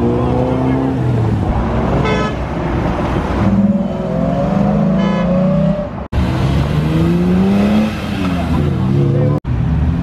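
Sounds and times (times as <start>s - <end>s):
cars accelerating: 0.0s - 10.0s
car horn toot: 2.0s - 2.4s, 4.9s - 5.5s.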